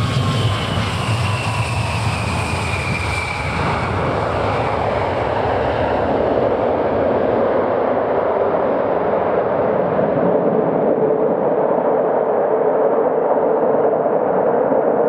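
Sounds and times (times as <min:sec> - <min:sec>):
high turbine whine: 0:00.0 - 0:15.0
jet engine roar: 0:00.0 - 0:15.0.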